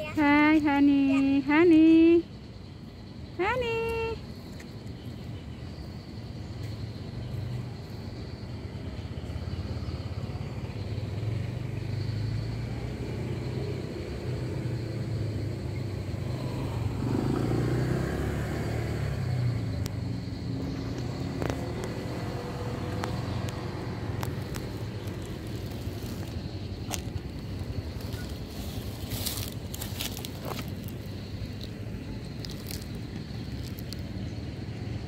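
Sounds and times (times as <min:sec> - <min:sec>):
vehicle engine rumbling: 0:00.0 - 0:35.0.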